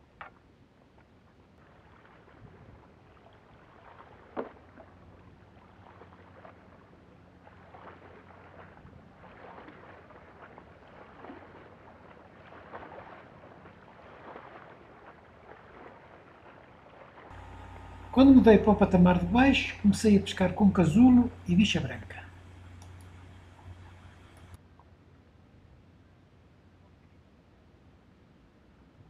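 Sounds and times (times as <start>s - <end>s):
small waves lapping on rocks: 1.4s - 24.6s.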